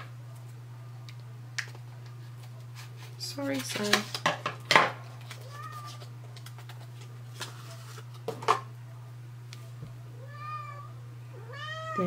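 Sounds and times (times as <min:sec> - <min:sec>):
steady low hum: 0:00.0 - 0:12.0
cat meowing: 0:05.4 - 0:06.0, 0:10.1 - 0:12.0.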